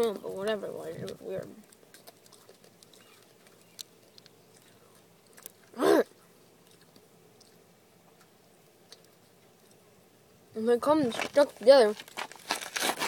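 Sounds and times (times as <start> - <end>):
paper wrapper crinkling: 11.0 - 13.0.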